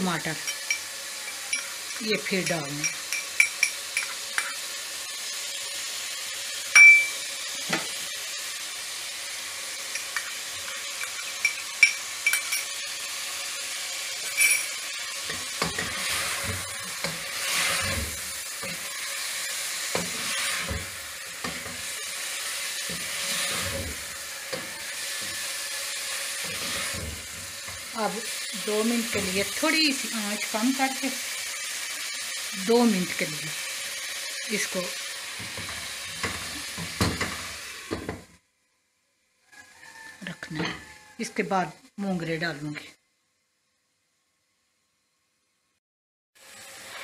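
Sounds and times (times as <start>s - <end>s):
meat sizzling in a pot: 0.0s - 38.5s, 46.4s - 47.0s
wooden spoon scraping a pot: 22.9s - 25.4s, 26.4s - 27.9s.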